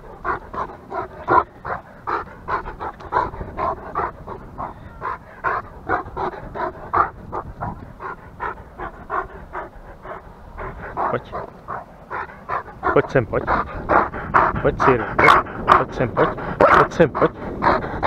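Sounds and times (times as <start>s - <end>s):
dog panting rapidly: 0.0s - 18.0s.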